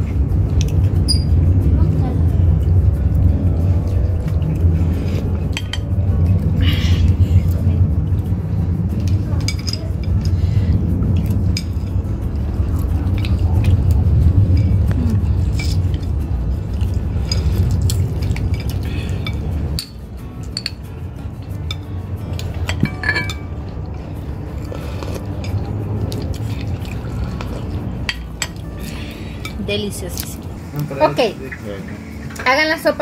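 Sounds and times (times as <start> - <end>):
steady low rumble: 0.0 - 33.0
metal spoon clinking on glass bowl: 22.6 - 23.6.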